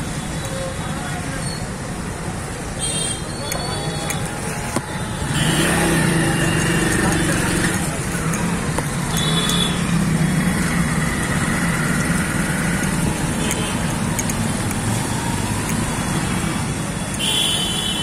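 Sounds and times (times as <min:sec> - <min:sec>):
road noise: 0:00.0 - 0:18.0
motorcycle engines running: 0:03.5 - 0:17.5.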